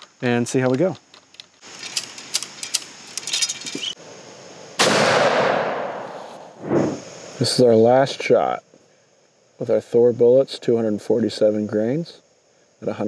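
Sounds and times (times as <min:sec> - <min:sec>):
rifle and ramrod clicking: 0:01.0 - 0:03.9
loud rifle shot: 0:04.8 - 0:06.8.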